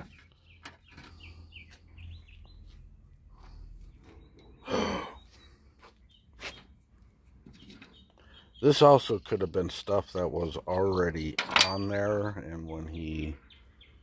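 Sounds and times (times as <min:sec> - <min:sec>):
faint bird chirps: 0:00.0 - 0:11.1.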